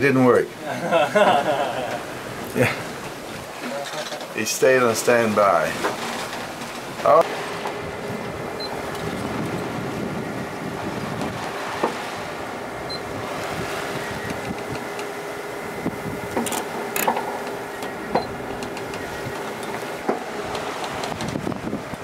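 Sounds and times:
steady mechanical hum: 0:00.0 - 0:22.0
water rushing along a hull: 0:00.0 - 0:22.0
light clicks and knocks: 0:16.3 - 0:21.4.

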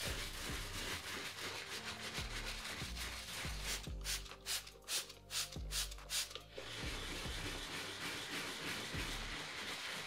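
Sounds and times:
brush scrubbing leather: 0:00.0 - 0:04.6, 0:06.6 - 0:10.0
background music: 0:00.0 - 0:10.0
spray bottle squirts: 0:03.2 - 0:08.9.

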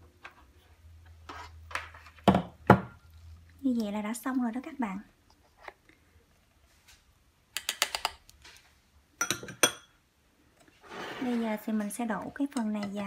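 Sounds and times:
kitchenware clicking and clinking: 0:09.2 - 0:10.0.

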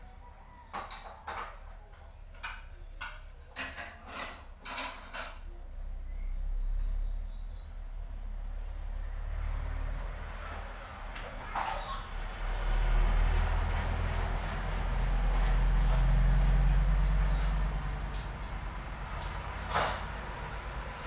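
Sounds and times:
dishes clattering and scraping: 0:00.5 - 0:01.7, 0:02.3 - 0:05.5, 0:11.2 - 0:12.0, 0:17.2 - 0:21.0
bird chirping: 0:05.7 - 0:08.0.

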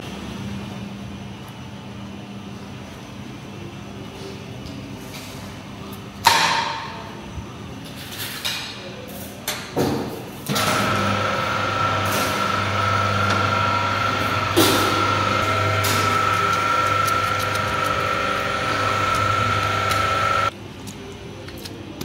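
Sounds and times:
machine hum with whine: 0:10.5 - 0:20.5.

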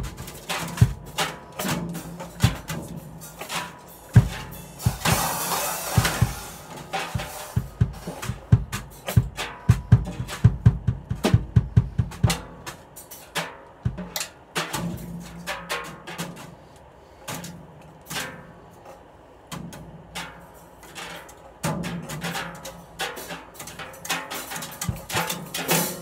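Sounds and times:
kick drum thumps: 0:00.0 - 0:01.2, 0:04.2 - 0:05.4, 0:07.2 - 0:12.6, 0:13.8 - 0:14.2
drum hits: 0:00.0 - 0:16.4, 0:21.6 - 0:26.0.

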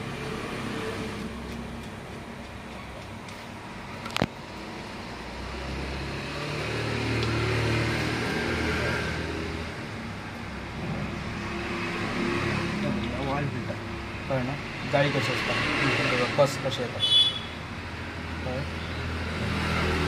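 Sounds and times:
steady traffic noise: 0:00.0 - 0:20.0
vehicle engine passing: 0:04.8 - 0:16.8, 0:19.0 - 0:20.0.

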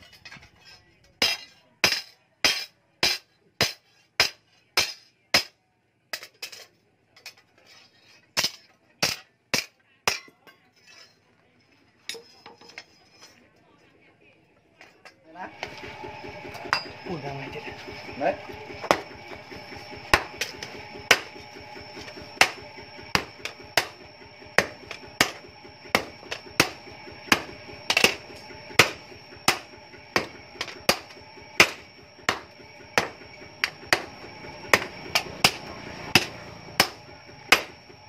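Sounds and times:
hammer striking hot metal: 0:01.2 - 0:05.5, 0:08.4 - 0:10.3, 0:15.6 - 0:17.1, 0:17.8 - 0:37.9.

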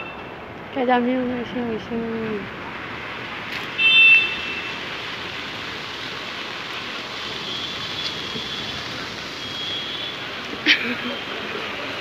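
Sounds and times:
rain and floodwater hissing: 0:00.0 - 0:12.0
high-pitched vehicle horn beep: 0:03.8 - 0:04.7, 0:09.4 - 0:10.2.

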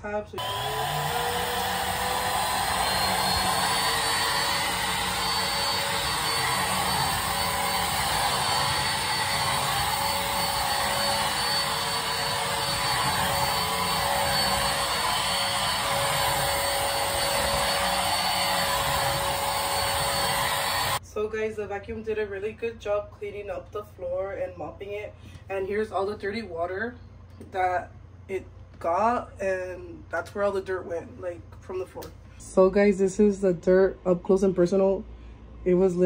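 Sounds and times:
vacuum mop motor whirring: 0:00.4 - 0:21.0.

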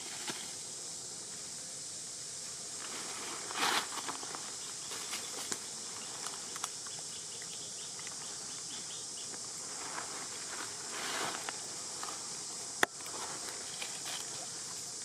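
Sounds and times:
high insect drone: 0:00.0 - 0:15.0
dry leaves rustling: 0:02.8 - 0:06.8, 0:09.4 - 0:15.0.

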